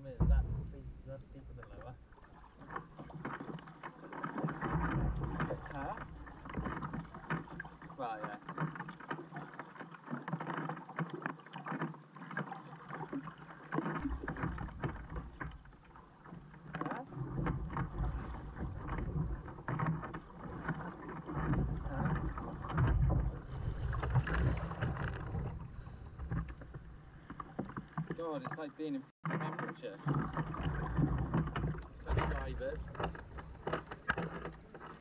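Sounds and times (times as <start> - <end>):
low rumble: 0.0 - 2.3
kayak paddles splashing: 0.0 - 35.0
water lapping against hull: 0.0 - 35.0.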